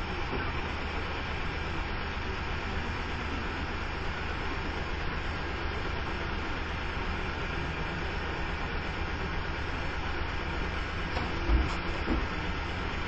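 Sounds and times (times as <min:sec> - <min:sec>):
diesel truck engine idling: 0:00.0 - 0:13.0
low thump: 0:11.1 - 0:12.3.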